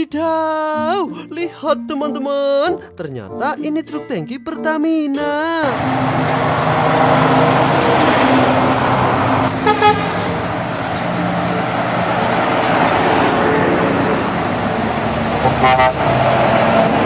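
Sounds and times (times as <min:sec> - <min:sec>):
diesel trucks driving past: 0:05.6 - 0:17.0
truck horn toot: 0:09.3 - 0:10.5, 0:15.4 - 0:16.4.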